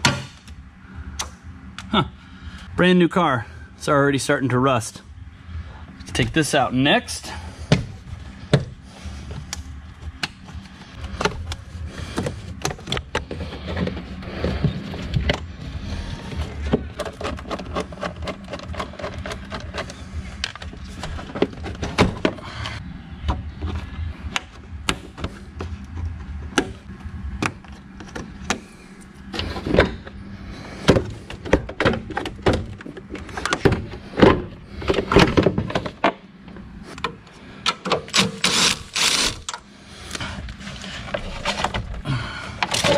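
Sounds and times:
steady low hum: 0:00.0 - 0:42.9
plastic parts clicking and rattling: 0:16.4 - 0:22.8, 0:36.9 - 0:42.9.

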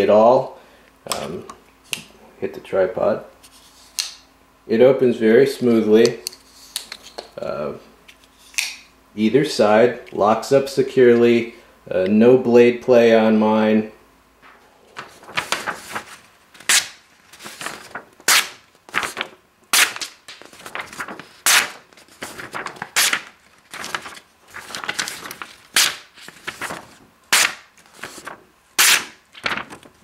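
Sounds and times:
paper crackle: 0:14.4 - 0:30.0
knife slicing paper: 0:15.3 - 0:29.9.

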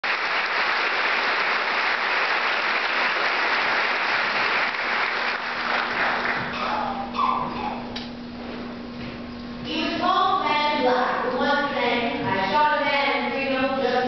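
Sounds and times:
audience applauding: 0:00.0 - 0:06.7
low steady hum: 0:01.2 - 0:14.0.

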